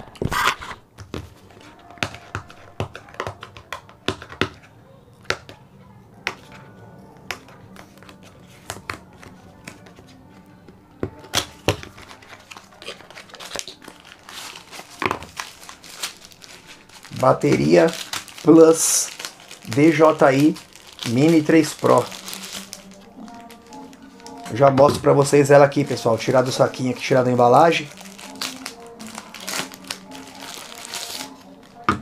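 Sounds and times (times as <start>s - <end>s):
faint music: 0.0s - 32.0s
plastic wrap crinkling: 11.3s - 32.0s.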